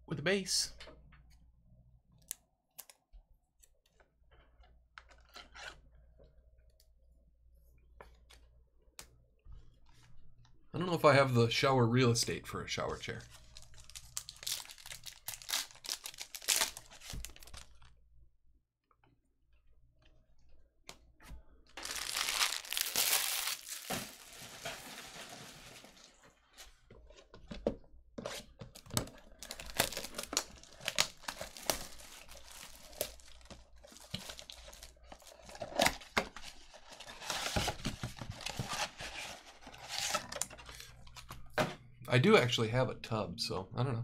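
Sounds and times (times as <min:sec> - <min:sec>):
packaging ripping and rustling: 0:13.4 - 0:17.8, 0:21.8 - 0:26.2, 0:29.0 - 0:40.4.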